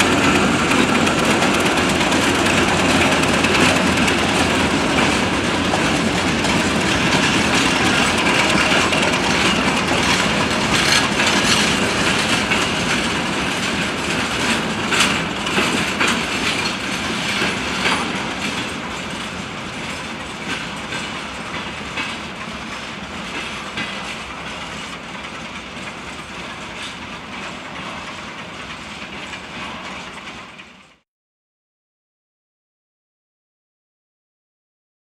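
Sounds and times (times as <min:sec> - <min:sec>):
train wheels clattering over rail joints: 0:00.0 - 0:31.0.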